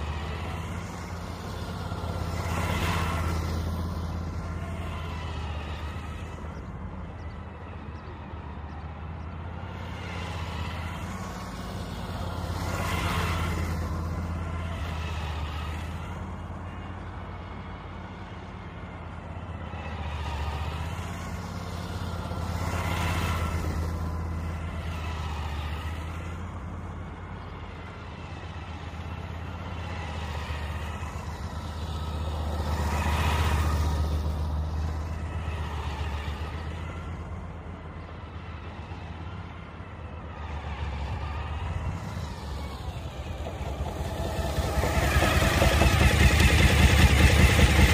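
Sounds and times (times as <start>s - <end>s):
motorcycle engine running: 42.9s - 47.9s.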